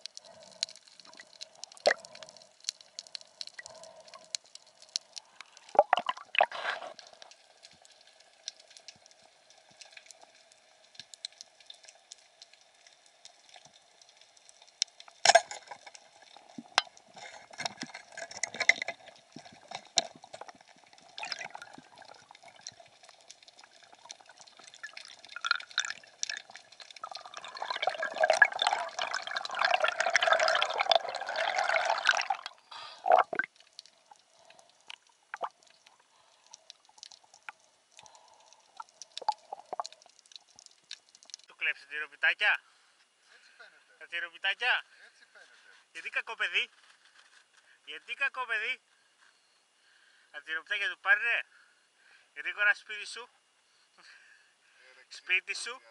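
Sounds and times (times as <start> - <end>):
water drips and splashes: 0.0 - 41.5
faint steady hum: 0.0 - 55.9.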